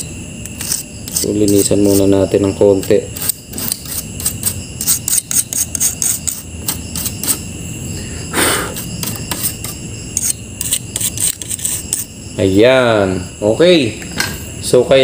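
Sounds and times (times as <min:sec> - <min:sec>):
stiff brush scrubbing: 0:00.6 - 0:02.2, 0:02.8 - 0:07.4, 0:08.7 - 0:12.1.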